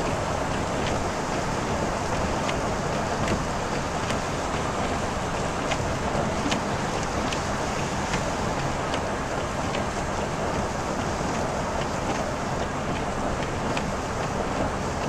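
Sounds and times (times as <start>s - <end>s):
raindrops ticking on windshield: 0.0s - 15.0s
tyres hissing on wet road: 0.0s - 15.0s.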